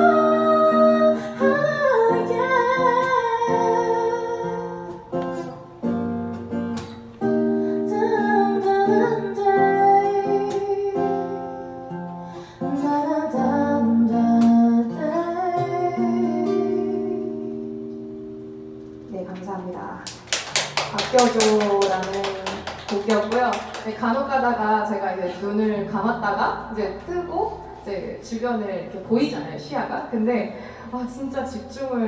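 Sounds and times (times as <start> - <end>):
woman singing into a microphone: 0.0 - 5.1, 7.5 - 17.9
acoustic guitar strummed: 0.0 - 19.1.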